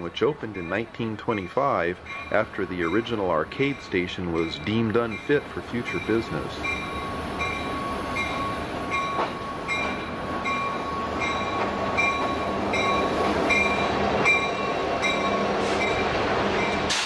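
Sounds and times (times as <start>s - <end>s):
diesel locomotives passing: 0.0s - 17.0s
train wheels rolling on rails: 0.0s - 17.0s
bell ringing: 4.4s - 17.0s.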